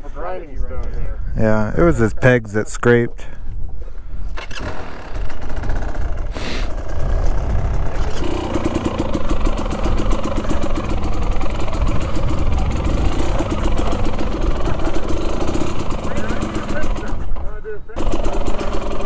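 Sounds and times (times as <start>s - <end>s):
dirt bike engine running: 4.4s - 19.0s
heavy low rumble: 5.4s - 18.0s.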